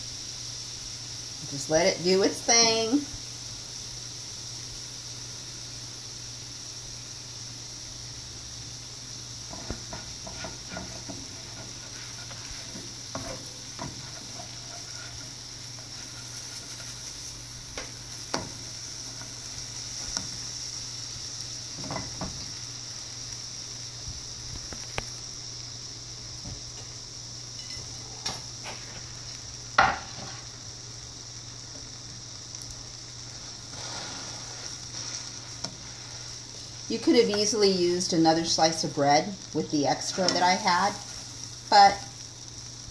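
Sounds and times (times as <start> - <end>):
food sizzling in a pan: 0.0 - 42.9
spatula tapping and scraping pan: 9.5 - 17.0, 17.7 - 18.7.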